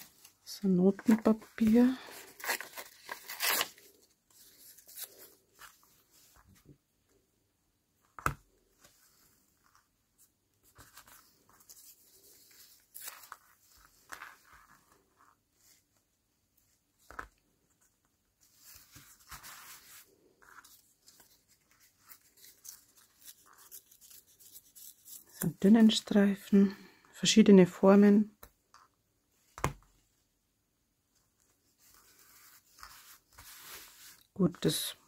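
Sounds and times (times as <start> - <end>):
paper rustling and rubbing: 0.0 - 6.6, 18.4 - 26.0, 31.4 - 34.8.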